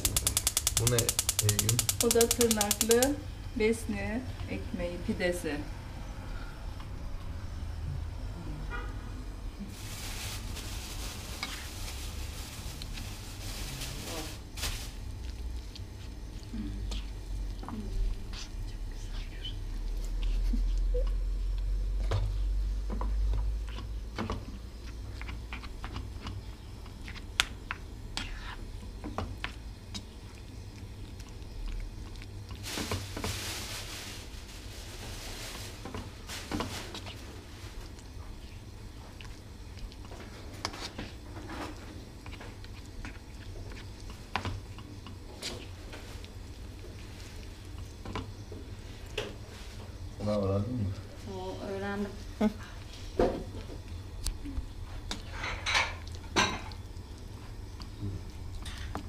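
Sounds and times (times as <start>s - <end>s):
spatula clicks on pan: 0.0s - 3.0s
soft sizzle: 0.0s - 59.0s.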